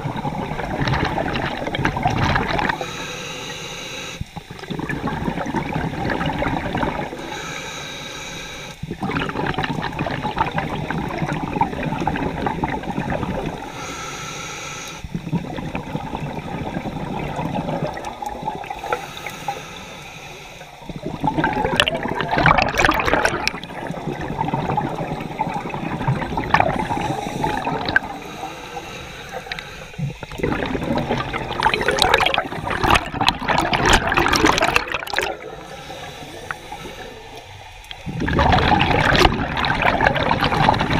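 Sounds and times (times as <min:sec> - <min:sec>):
underwater bubbling exhalation: 0:00.0 - 0:03.0, 0:04.3 - 0:07.4, 0:08.8 - 0:13.8, 0:15.1 - 0:19.6, 0:20.6 - 0:40.9
whistling hiss of inhalation: 0:02.8 - 0:04.3, 0:07.2 - 0:08.8, 0:13.6 - 0:15.1, 0:18.8 - 0:20.8, 0:26.8 - 0:30.2, 0:35.6 - 0:37.4.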